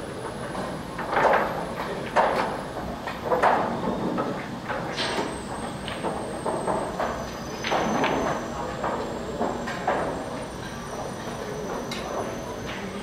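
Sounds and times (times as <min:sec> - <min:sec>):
pool hall hum: 0:00.0 - 0:13.0.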